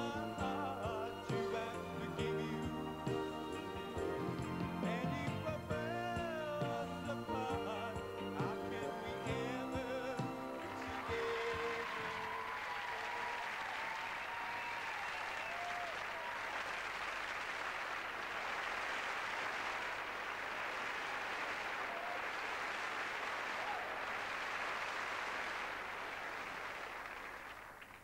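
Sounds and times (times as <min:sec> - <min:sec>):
audience applauding: 0:10.6 - 0:28.0.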